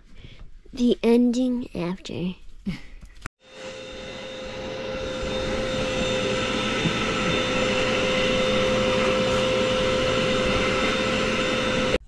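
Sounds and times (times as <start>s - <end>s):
vacuum cleaner whining: 3.4s - 12.0s.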